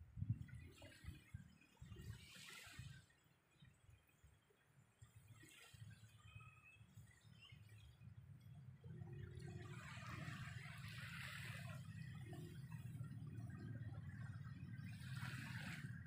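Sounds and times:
small waves washing on sand: 0.4s - 3.7s, 9.4s - 13.2s, 14.2s - 16.0s.

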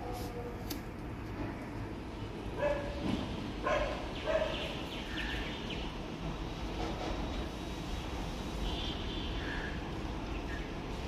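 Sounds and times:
dog barking: 2.6s - 3.0s, 3.6s - 4.8s.

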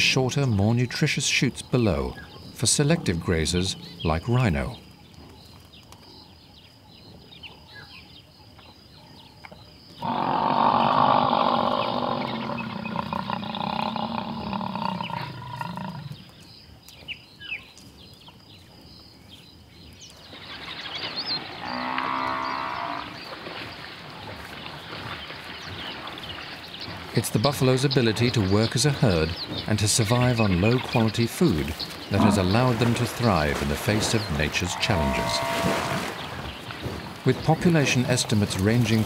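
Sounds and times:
buffalo bellowing: 10.0s - 16.2s, 32.1s - 36.3s.

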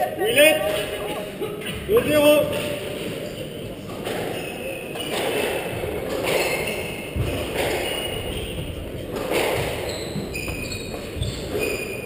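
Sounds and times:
shoes squeaking on wooden floor: 4.0s - 12.0s.

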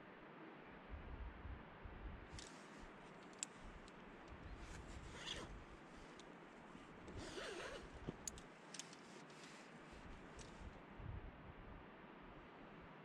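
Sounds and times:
carabiners clinking: 2.3s - 10.7s
rope zipping through belay device: 2.3s - 10.7s.

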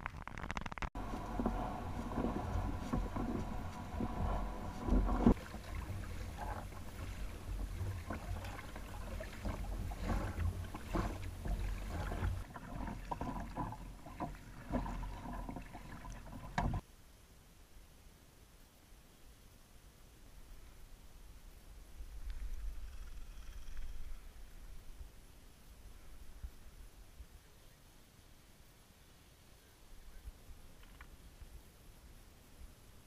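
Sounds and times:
water slapping hull: 0.6s - 16.8s
paddle strokes splashing: 1.0s - 16.8s
wind rumble on microphone: 1.0s - 16.8s.

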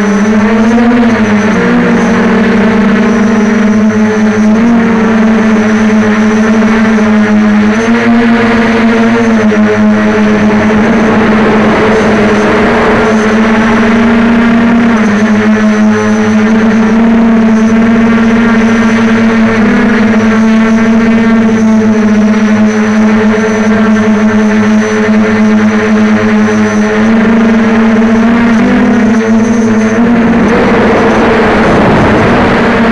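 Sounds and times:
quadcopter motors buzzing: 0.0s - 32.9s.

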